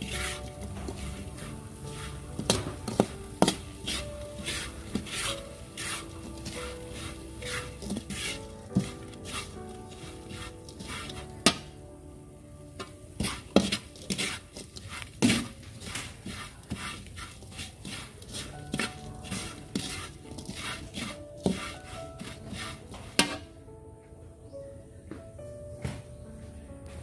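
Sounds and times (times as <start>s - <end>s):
utensil scraping a pan: 0.0s - 11.8s, 12.8s - 23.6s.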